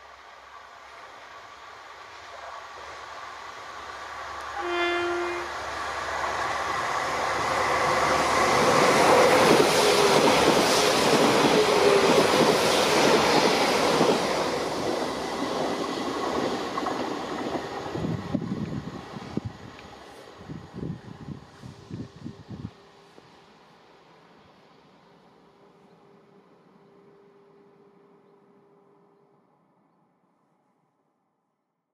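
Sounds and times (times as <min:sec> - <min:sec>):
train passing at speed: 0:00.0 - 0:30.6
train warning horn blast: 0:04.4 - 0:05.6.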